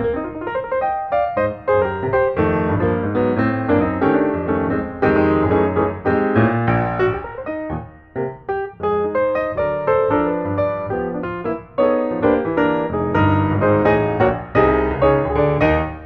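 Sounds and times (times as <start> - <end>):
piano music: 0.0 - 16.0.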